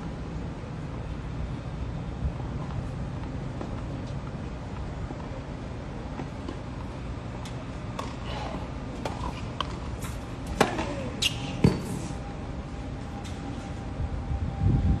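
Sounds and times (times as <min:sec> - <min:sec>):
tennis balls bouncing on court: 0:07.4 - 0:12.0
tennis balls hit with rackets: 0:07.4 - 0:12.1.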